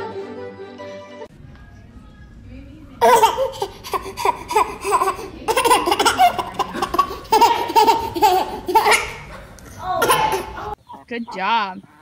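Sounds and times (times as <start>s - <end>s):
baby laughing: 3.0s - 10.8s.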